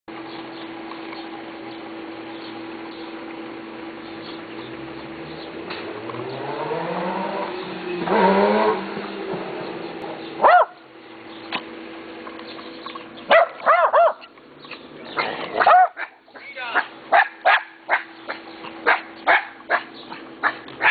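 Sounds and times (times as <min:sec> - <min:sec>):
small dog barking: 0:10.4 - 0:10.8, 0:13.3 - 0:14.3, 0:15.2 - 0:20.9.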